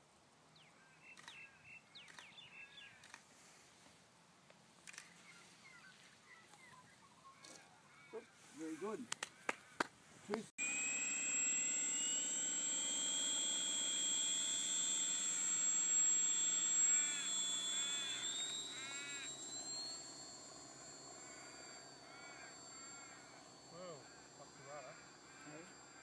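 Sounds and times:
model aircraft motor whine: 0:10.6 - 0:26.0.

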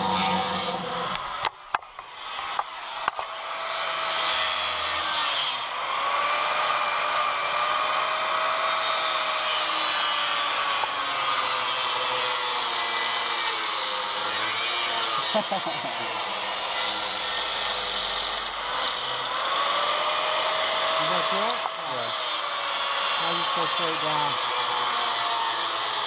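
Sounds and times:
angle grinder cutting steel: 0:00.0 - 0:26.0.

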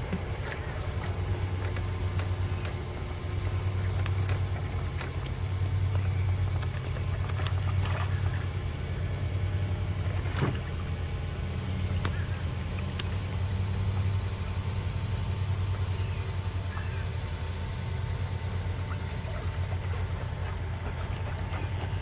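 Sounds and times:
steady low hum: 0:00.0 - 0:22.0.

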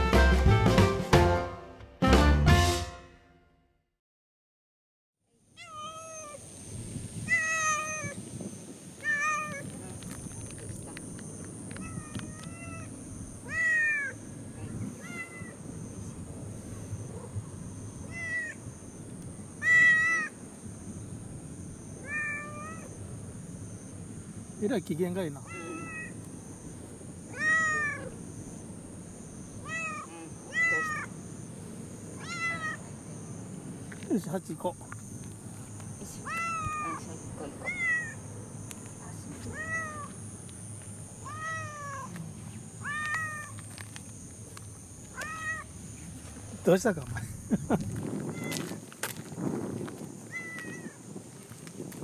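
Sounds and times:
cat meowing: 0:05.6 - 0:06.4, 0:07.2 - 0:08.2, 0:09.0 - 0:09.7, 0:11.8 - 0:15.6, 0:18.0 - 0:18.6, 0:19.6 - 0:20.3, 0:22.0 - 0:23.0, 0:25.4 - 0:26.2, 0:27.2 - 0:28.2, 0:29.6 - 0:31.2, 0:32.2 - 0:32.9, 0:36.2 - 0:38.2, 0:39.4 - 0:40.2, 0:41.2 - 0:42.2, 0:42.8 - 0:43.6, 0:45.1 - 0:45.7, 0:48.3 - 0:48.8, 0:50.3 - 0:51.0.

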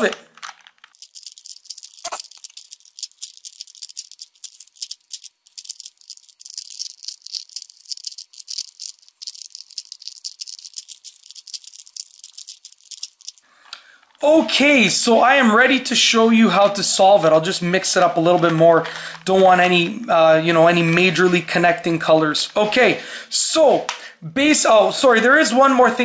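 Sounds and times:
puzzle cube clicking and rattling: 0:00.0 - 0:13.4.

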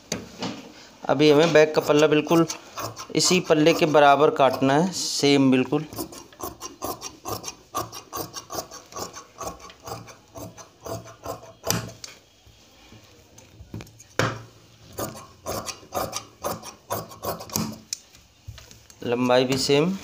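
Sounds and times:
shears snipping fabric: 0:01.3 - 0:04.9, 0:05.9 - 0:12.0, 0:14.9 - 0:18.0.

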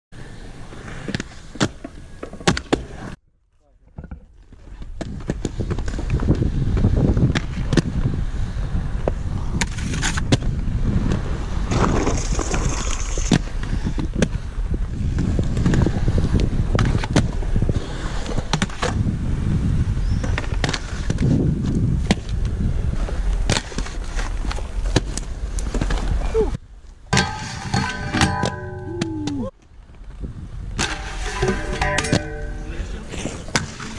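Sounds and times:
skate wheels rolling on concrete: 0:00.2 - 0:03.2, 0:03.8 - 0:33.9
sharp clacks of grinds and landings: 0:27.1 - 0:29.5, 0:30.7 - 0:33.9.

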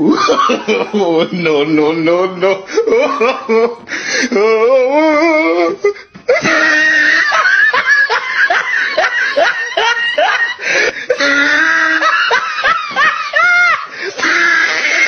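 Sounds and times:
snickering laughter: 0:05.8 - 0:15.0.

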